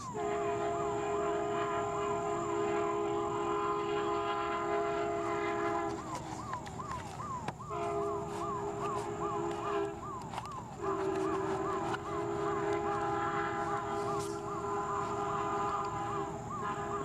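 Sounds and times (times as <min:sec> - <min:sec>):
horn-like blare: 0:00.0 - 0:06.1, 0:07.6 - 0:10.2, 0:10.8 - 0:17.0
siren yelping: 0:03.4 - 0:17.0.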